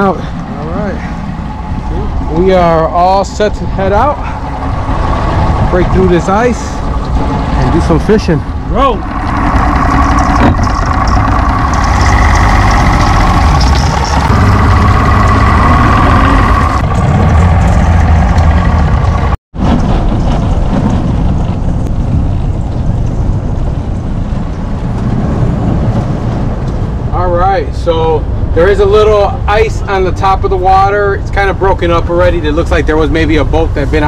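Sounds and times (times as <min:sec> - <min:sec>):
outboard engine running: 0:00.0 - 0:19.4
water rushing along hull: 0:00.0 - 0:27.2.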